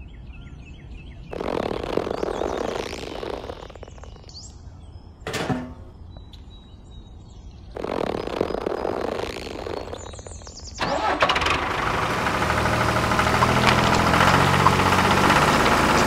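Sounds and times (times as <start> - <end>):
birds chirping faintly: 0.0 - 16.0
plastic ring scraping tyre: 1.3 - 4.1, 7.8 - 16.0.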